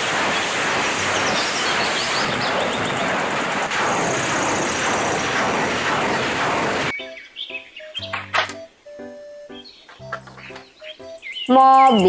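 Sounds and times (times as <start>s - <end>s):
rockets roaring from launcher: 0.0s - 6.9s.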